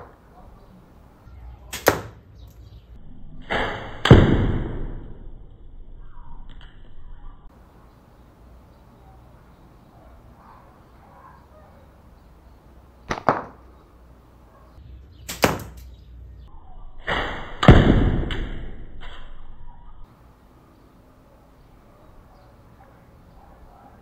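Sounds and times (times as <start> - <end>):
hard crack: 1.7 - 2.2, 13.1 - 13.6
slingshot shots cracking: 1.7 - 2.2, 3.4 - 5.2, 13.1 - 13.6, 15.3 - 15.9, 17.0 - 19.2.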